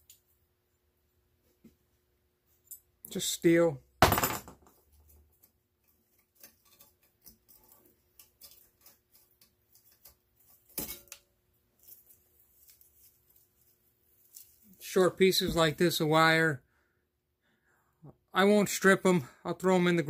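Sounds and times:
wires rustling being pulled: 4.8s - 16.0s.

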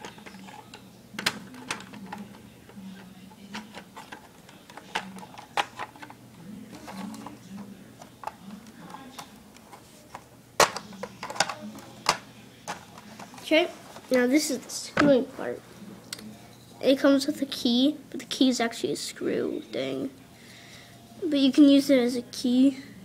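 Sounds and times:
plastic toy parts clicking: 1.2s - 2.4s.

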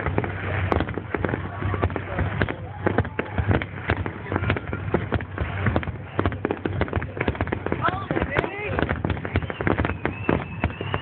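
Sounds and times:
fireworks cracking and popping: 0.0s - 11.0s.

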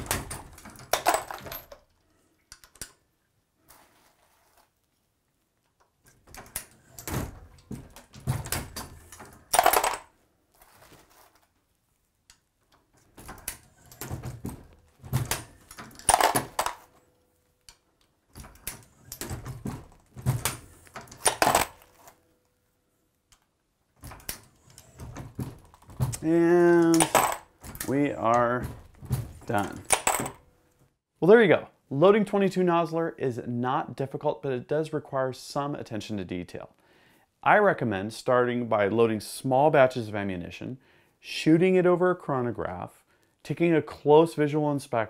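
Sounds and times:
reloading press metallic clacks: 6.1s - 10.1s, 15.2s - 16.9s, 18.4s - 22.1s, 24.0s - 30.4s.

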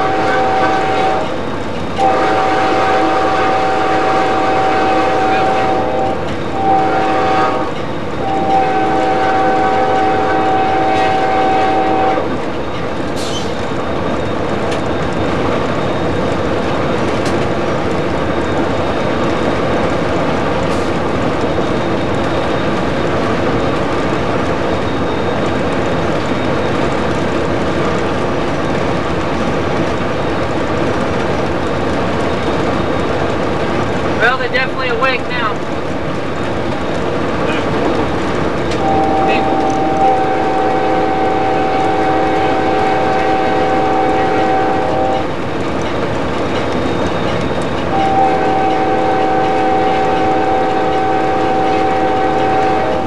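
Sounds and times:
locomotive air horn: 0.0s - 1.4s, 2.0s - 12.4s, 38.8s - 45.3s, 47.9s - 53.0s
train wheels rumbling on rail: 0.0s - 53.0s.

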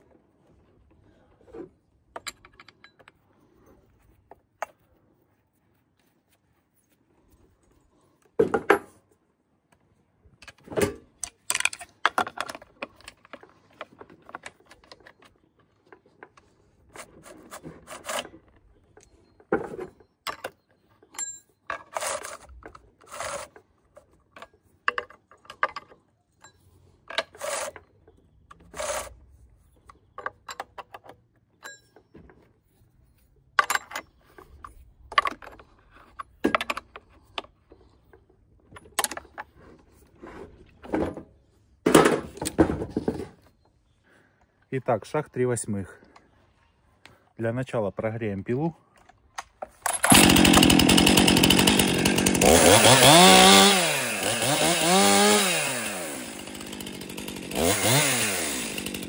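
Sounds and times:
metal and plastic clicks and rattles: 2.1s - 3.3s, 10.4s - 29.1s, 29.7s - 32.5s, 33.5s - 40.0s, 48.9s - 50.2s.

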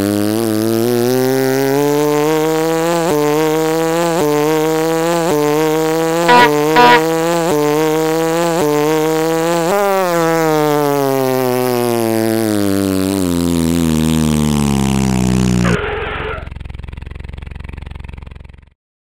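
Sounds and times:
truck engine winding down: 15.2s - 16.5s.

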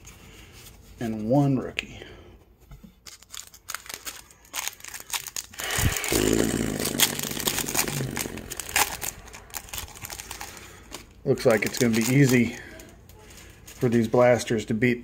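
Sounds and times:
foil wrapper tearing and crinkling: 3.0s - 14.1s.

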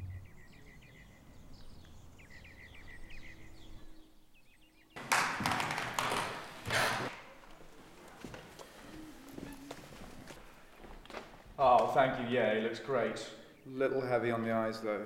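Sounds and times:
small birds chirping: 0.0s - 5.0s, 7.2s - 15.0s.

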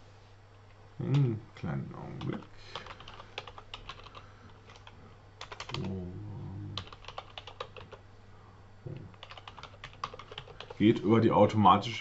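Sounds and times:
computer keyboard typing: 2.2s - 6.0s, 6.8s - 8.0s, 9.1s - 10.8s.

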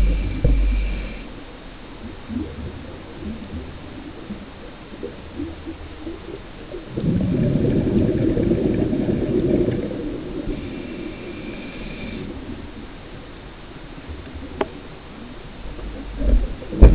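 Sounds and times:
underwater breath bubbles gurgling: 0.0s - 13.3s.

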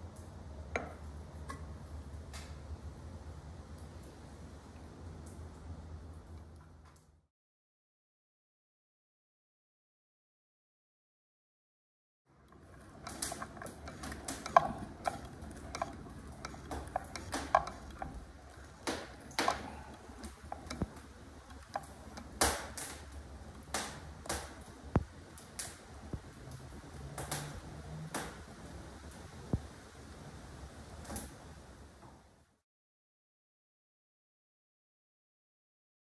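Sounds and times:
looper mechanism clicking: 12.4s - 28.4s.

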